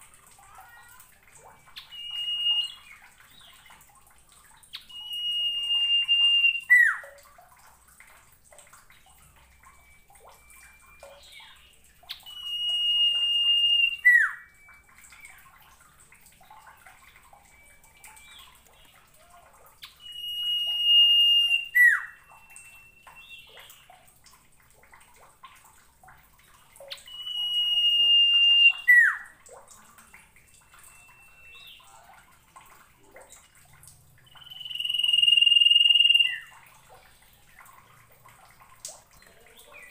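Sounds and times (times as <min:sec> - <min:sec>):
soft low flat whistles: 0:01.5 - 0:03.3, 0:04.8 - 0:07.2, 0:09.2 - 0:15.5, 0:19.9 - 0:23.9, 0:26.9 - 0:29.4, 0:30.5 - 0:32.1, 0:34.2 - 0:36.6
bird whistling song: 0:01.5 - 0:03.8, 0:04.7 - 0:07.2, 0:09.7 - 0:15.7, 0:17.5 - 0:19.2, 0:19.8 - 0:24.0, 0:26.8 - 0:29.4, 0:30.6 - 0:32.0, 0:34.2 - 0:36.7.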